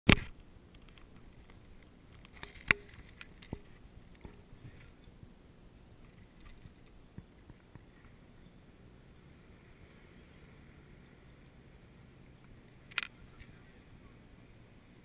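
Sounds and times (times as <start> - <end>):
sharp clicks and knocks: 0.1 - 5.0
outdoor background noise: 0.1 - 15.0.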